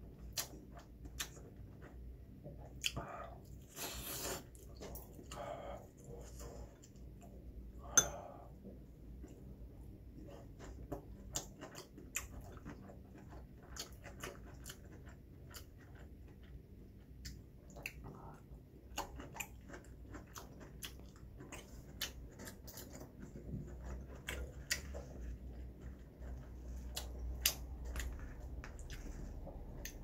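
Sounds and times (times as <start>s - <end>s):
person chewing crunchy food: 10.2s - 30.0s.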